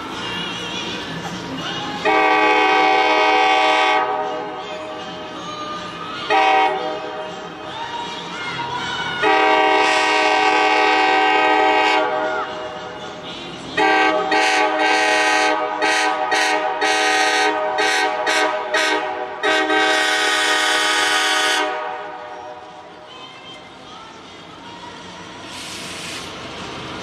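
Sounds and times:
locomotive air horn blasts: 0:02.0 - 0:04.4, 0:06.3 - 0:07.2, 0:09.2 - 0:12.3, 0:13.8 - 0:22.6.

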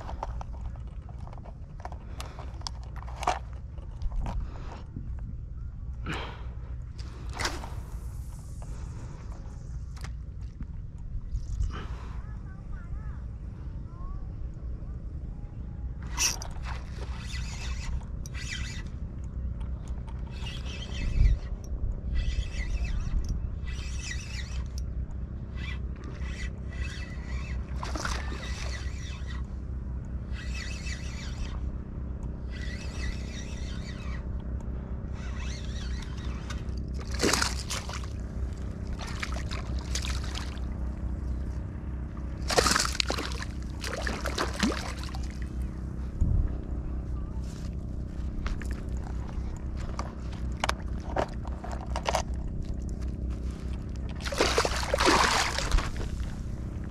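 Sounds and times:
wind rumble on microphone: 0:00.0 - 0:56.9
fishing reel and line noise: 0:16.0 - 0:45.8, 0:47.5 - 0:56.9
fish splashing in water: 0:37.0 - 0:38.1, 0:42.4 - 0:45.4, 0:54.2 - 0:56.1.

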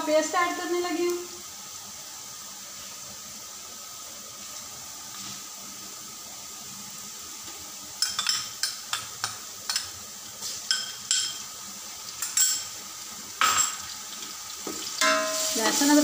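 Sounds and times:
oil sizzling in a pot: 0:00.0 - 0:16.0
spoon clinking and scraping pot: 0:08.0 - 0:09.9, 0:10.7 - 0:11.5, 0:12.2 - 0:12.7, 0:15.0 - 0:16.0.

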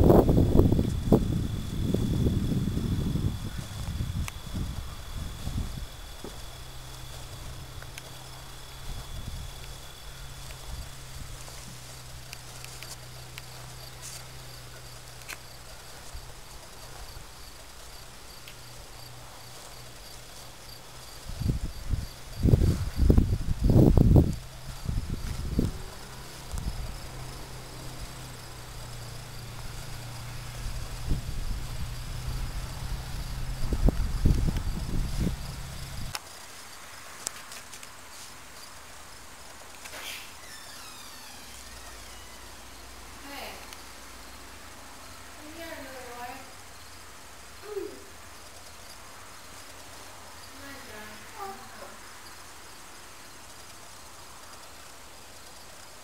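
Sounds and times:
wind buffeting microphone: 0:00.0 - 0:11.5, 0:21.2 - 0:36.1
crickets chirping: 0:00.0 - 0:56.0.

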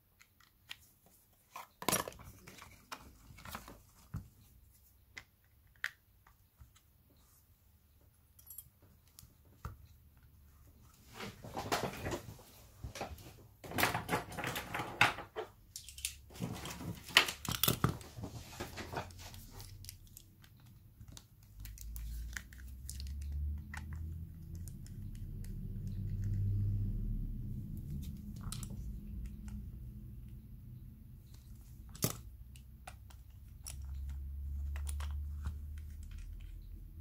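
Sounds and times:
crinkling handling noise: 0:00.2 - 0:07.5, 0:10.7 - 0:25.5, 0:31.2 - 0:37.0.

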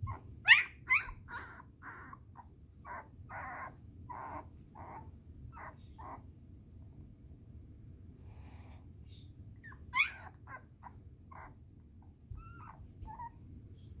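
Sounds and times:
puppy whimpering and squeaking: 0:00.0 - 0:06.3, 0:09.1 - 0:13.9.

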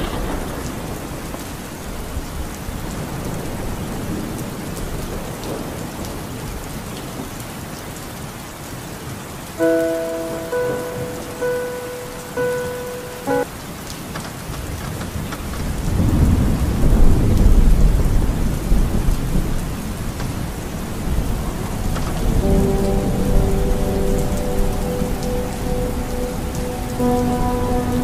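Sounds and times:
low rumble of thunder: 0:00.0 - 0:06.6, 0:14.6 - 0:28.0
heavy rain on a car roof: 0:00.0 - 0:28.0.

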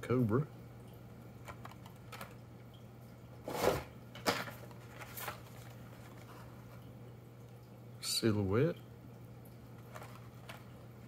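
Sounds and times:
low steady hum: 0:00.0 - 0:11.0
plastic and cardboard rustling: 0:03.4 - 0:06.9, 0:09.8 - 0:10.8.

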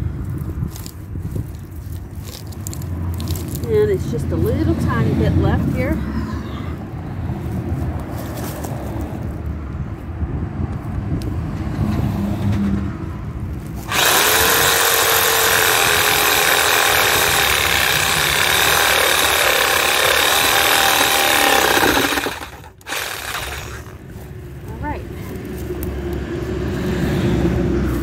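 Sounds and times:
reciprocating saw cutting wood: 0:13.8 - 0:24.0.

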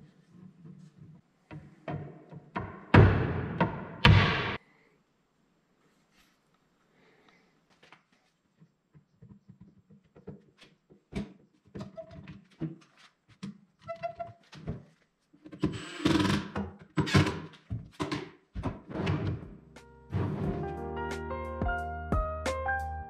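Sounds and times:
wooden knocks and taps: 0:08.9 - 0:11.9.

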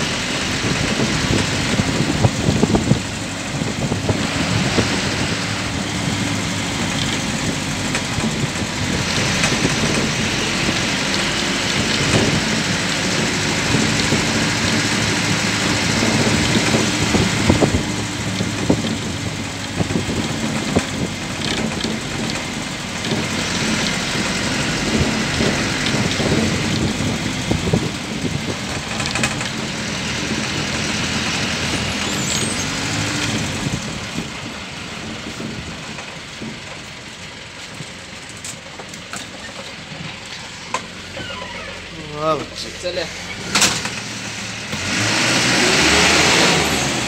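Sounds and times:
road noise: 0:00.0 - 0:47.0
vehicle engine running: 0:00.0 - 0:47.0
knocks and rattles: 0:06.0 - 0:36.9.

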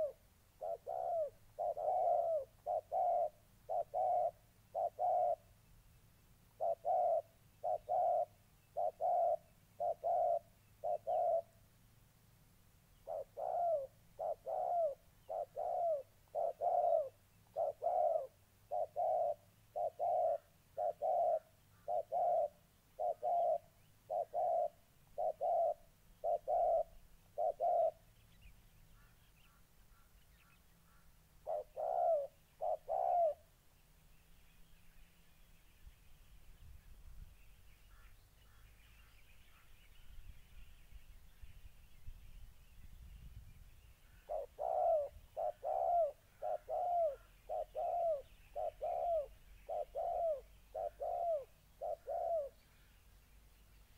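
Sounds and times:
doves cooing: 0:00.0 - 0:05.5, 0:06.6 - 0:11.6, 0:13.0 - 0:28.1, 0:31.0 - 0:33.5, 0:44.1 - 0:52.8.

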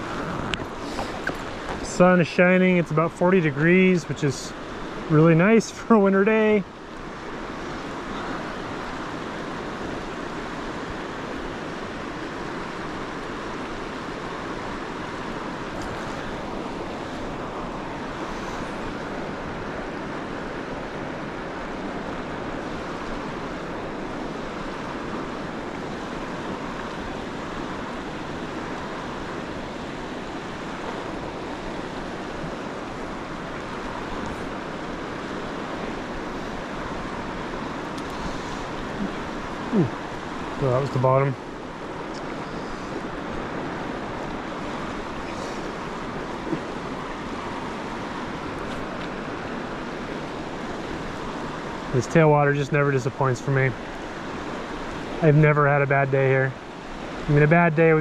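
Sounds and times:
river rushing: 0:00.0 - 0:58.0.

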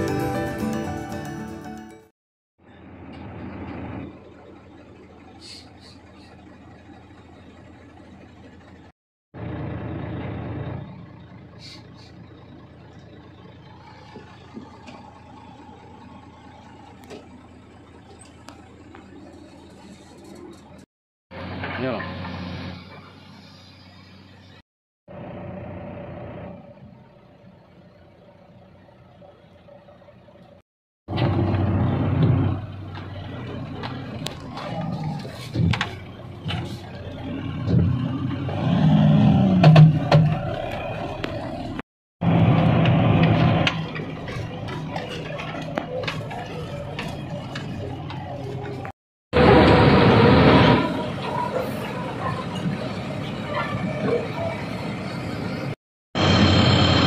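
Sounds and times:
diesel machinery engine hum: 0:02.6 - 0:57.0
knocks and rattles from bumpy ride: 0:12.3 - 0:23.2, 0:31.1 - 0:50.0
faint whine: 0:56.2 - 0:57.0.

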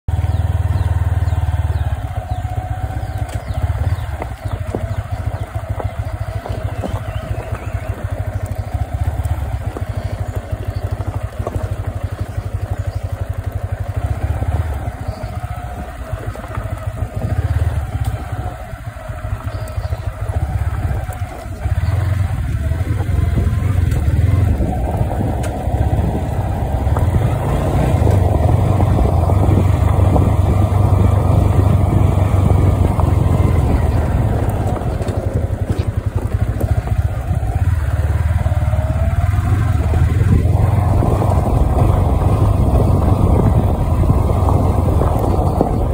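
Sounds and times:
motorcycle engine running: 0:00.1 - 0:45.9
knocks and rattles from rough ground: 0:02.4 - 0:14.1, 0:14.8 - 0:37.9.

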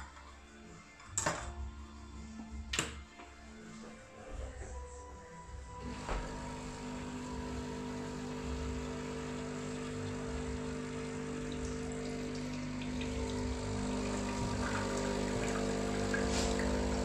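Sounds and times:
espresso machine pump humming: 0:05.8 - 0:17.0
espresso running into cup: 0:05.8 - 0:17.0.

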